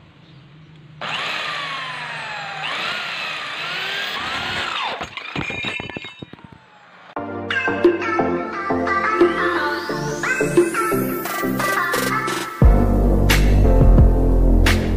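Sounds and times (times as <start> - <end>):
drill bit squealing in metal: 1.1 - 6.8.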